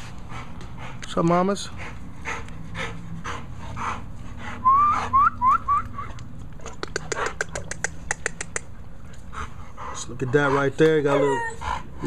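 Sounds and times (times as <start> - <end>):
puppy panting: 0.0 - 12.0
sharp clicks: 5.8 - 8.7.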